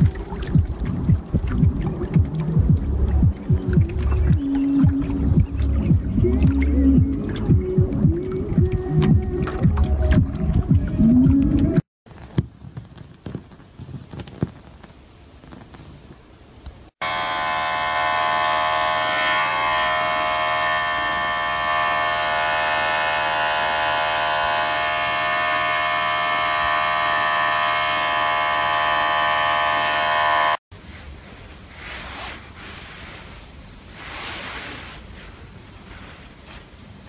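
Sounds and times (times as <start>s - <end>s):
pet hair trimmer buzzing: 17.0s - 30.6s
faint rustling: 30.8s - 37.0s.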